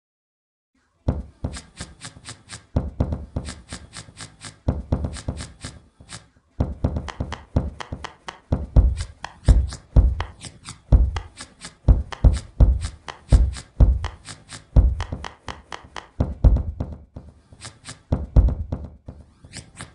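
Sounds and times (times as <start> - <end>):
deep percussive thumps: 8.5 - 10.3, 10.9 - 11.3, 11.9 - 14.2, 14.8 - 15.2, 16.2 - 17.1, 18.2 - 19.0.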